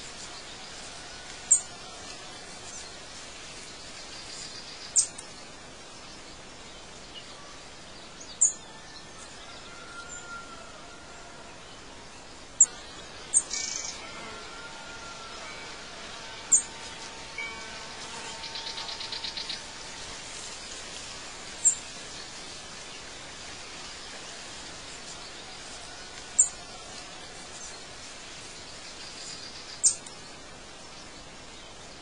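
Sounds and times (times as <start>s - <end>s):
steady hiss: 0.0s - 32.0s
bird trill: 12.6s - 14.1s, 16.3s - 19.8s
birds chirping: 16.2s - 32.0s.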